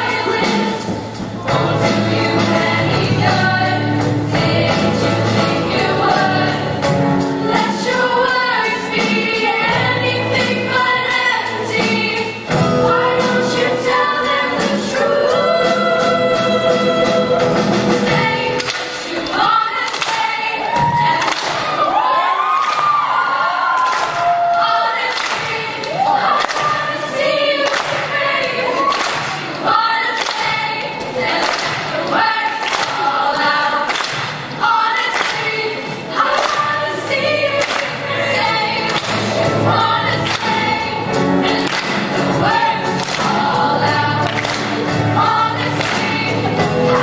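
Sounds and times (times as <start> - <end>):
live band with steady beat: 0.0 - 19.6, 35.4 - 47.0
choir singing in harmony: 0.0 - 22.4, 23.2 - 47.0.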